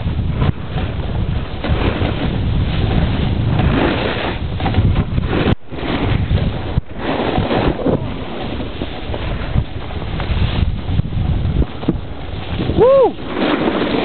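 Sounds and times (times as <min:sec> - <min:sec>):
snowboard sliding over snow: 0:00.0 - 0:14.0
wind buffeting microphone: 0:00.0 - 0:14.0.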